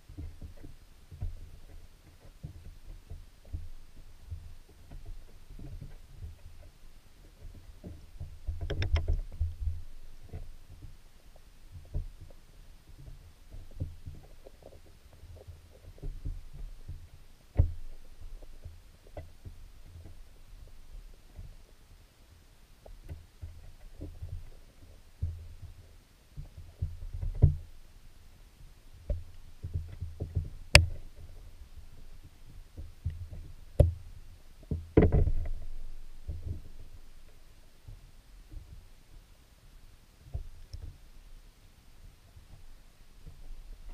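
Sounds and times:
thuds and clicks: 7.4 - 11.0, 34.6 - 36.9
muffled underwater thumps: 11.7 - 20.2, 29.1 - 31.4, 34.6 - 36.9
muffled underwater knocks: 34.6 - 36.9.

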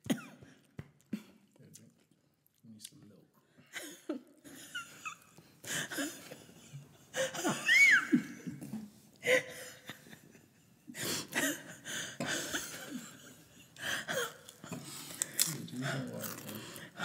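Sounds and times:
coughing: 0.0 - 0.6
gasping breaths: 10.9 - 13.2, 13.8 - 17.0.

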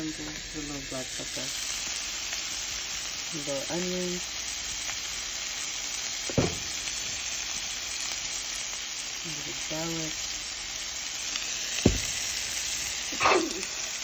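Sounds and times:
meat sizzling in a frying pan: 0.0 - 14.0
sharp knock: 6.3 - 6.7, 11.8 - 12.2.

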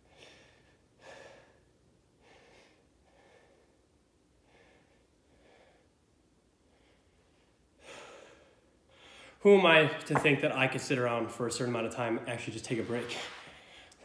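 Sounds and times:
man breathing hard: 0.0 - 9.4.

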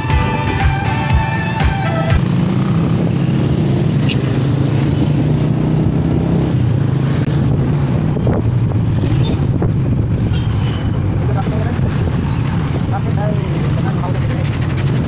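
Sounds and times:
wind on microphone: 2.2 - 15.0
scooter engine running: 11.9 - 15.0.

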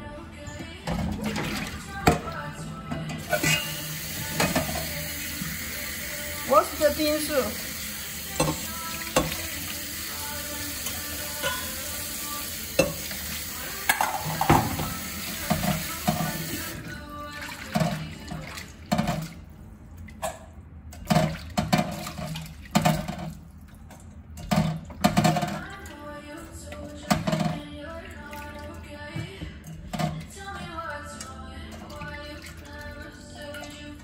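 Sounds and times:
tap water running into sink: 3.0 - 16.8, 26.8 - 27.7
splashes in sink: 3.3 - 19.5.

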